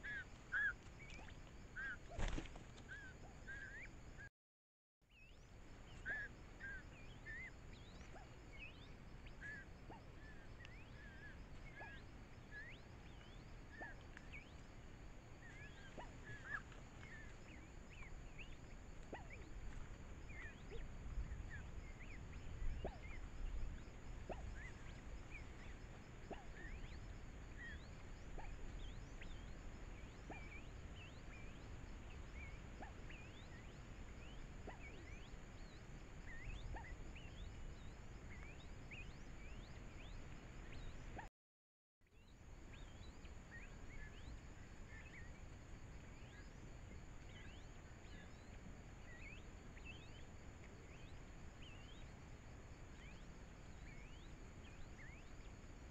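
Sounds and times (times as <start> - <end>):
faint high-pitched hum: 0.0 - 4.3, 5.1 - 41.2, 42.1 - 55.9
soft ticks: 10.6 - 10.8.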